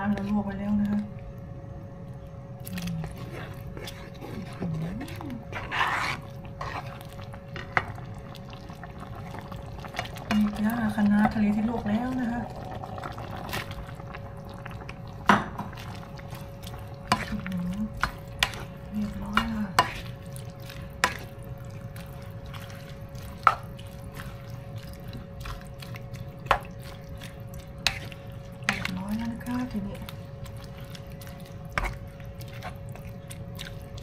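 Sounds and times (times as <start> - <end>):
steady faint hum: 0.0 - 34.0
liquid sloshing: 2.7 - 34.0.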